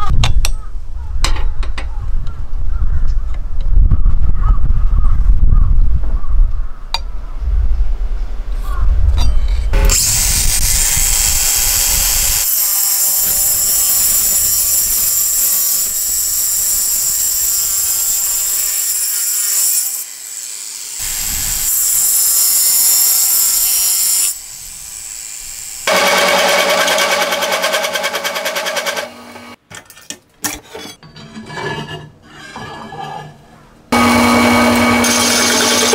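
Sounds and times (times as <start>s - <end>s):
angle grinder cutting concrete: 9.8s - 29.5s, 34.0s - 35.9s
power tool running loudly: 24.8s - 29.6s, 34.0s - 35.9s.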